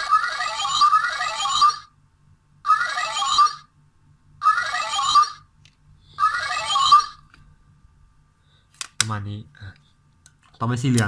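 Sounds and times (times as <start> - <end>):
warbling electronic toy sound effect: 0.0 - 1.9, 2.7 - 3.7, 4.4 - 5.5, 6.2 - 7.2.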